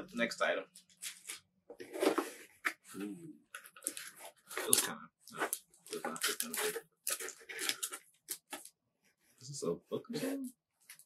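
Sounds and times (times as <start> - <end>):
cardboard and paper rustling: 1.1 - 2.9, 3.7 - 8.7.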